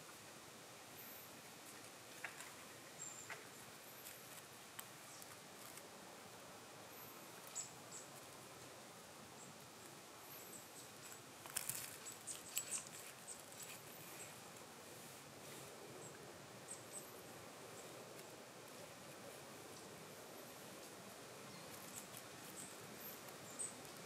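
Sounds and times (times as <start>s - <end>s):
soft steady hiss: 0.0s - 24.0s
small clicks and crackles: 1.6s - 5.9s, 10.6s - 14.7s, 20.7s - 24.0s.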